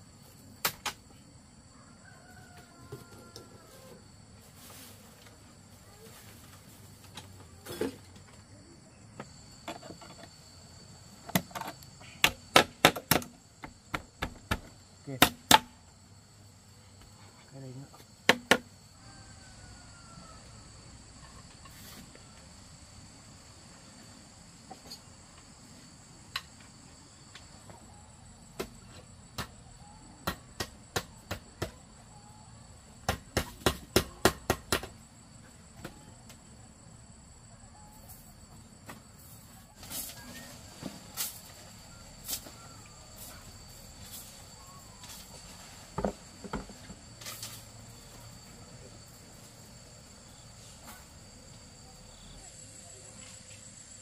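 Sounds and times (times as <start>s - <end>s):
high insect drone: 0.0s - 54.0s
sharp knocks of house work: 11.3s - 15.8s, 18.2s - 18.7s, 30.2s - 31.8s, 33.0s - 35.0s, 46.0s - 47.0s.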